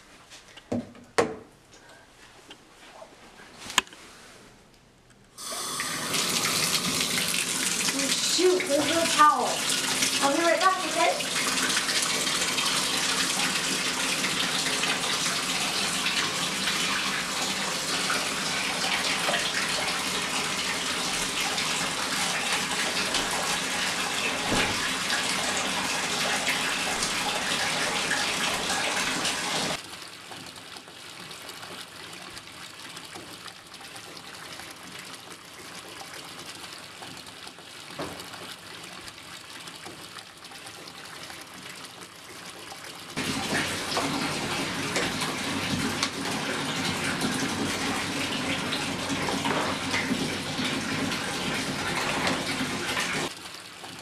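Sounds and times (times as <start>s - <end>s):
tap running into bathtub: 5.5s - 29.8s, 37.9s - 38.6s, 43.2s - 53.3s.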